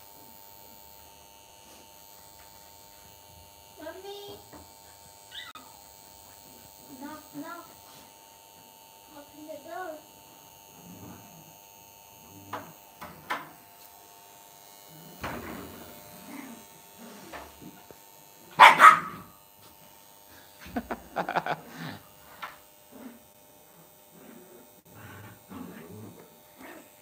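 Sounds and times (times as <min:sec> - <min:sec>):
small dogs barking: 0:18.5 - 0:19.3.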